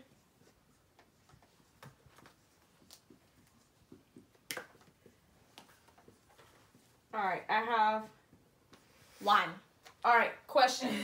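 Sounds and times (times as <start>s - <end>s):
markers tapping on whiteboards: 0.8s - 6.8s.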